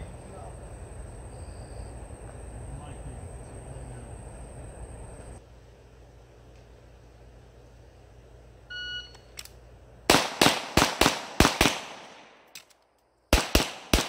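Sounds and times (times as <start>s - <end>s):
shot timer beep: 8.7s - 9.3s
pistol firing rapidly: 10.1s - 12.4s, 13.3s - 14.0s.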